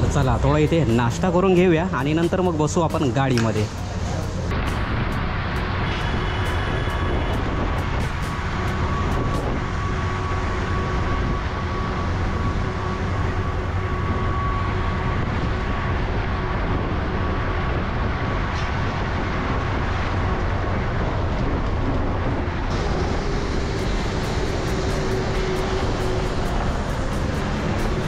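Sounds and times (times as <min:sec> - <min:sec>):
bus engine and road noise: 0:00.0 - 0:28.0.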